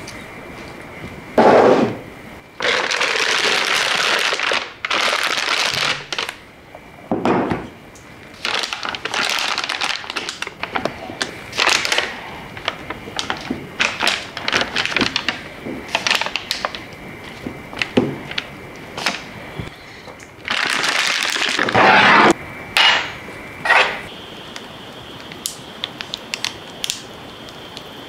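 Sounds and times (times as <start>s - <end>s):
plastic pastry bag crinkling: 2.6s - 6.4s, 8.3s - 19.2s, 20.4s - 21.8s.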